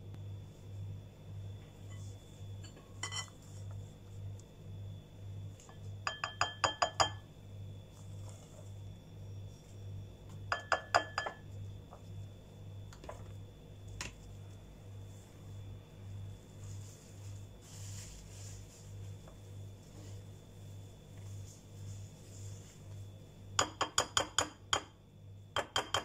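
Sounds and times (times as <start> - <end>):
low steady hum: 0.0 - 26.0
spatula tapping glass bowl: 5.7 - 7.2, 10.5 - 11.4, 23.6 - 24.9, 25.6 - 26.0.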